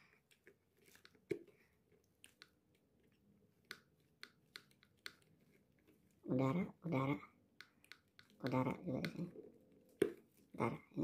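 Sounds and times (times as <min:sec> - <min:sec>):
fingers tapping plastic helmet: 0:03.6 - 0:05.4, 0:07.5 - 0:09.3, 0:10.0 - 0:10.3.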